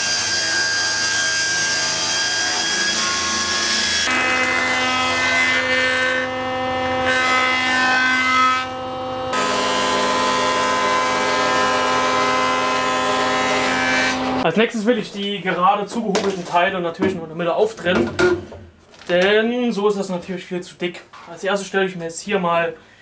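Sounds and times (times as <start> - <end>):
planer cutting wood: 0.0 - 14.4
table saw ripping wood: 0.0 - 14.4.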